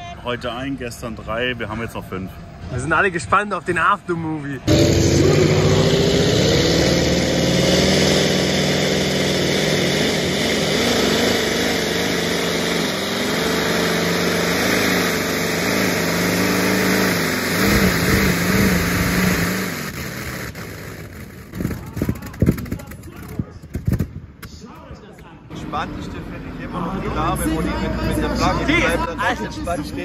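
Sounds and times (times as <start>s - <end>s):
tractor engine at full throttle: 4.6s - 24.2s.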